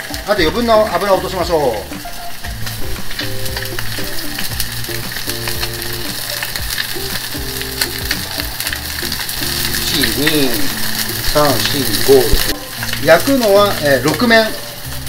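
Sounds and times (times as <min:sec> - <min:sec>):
pork sizzling in frying pan: 0:00.0 - 0:15.0.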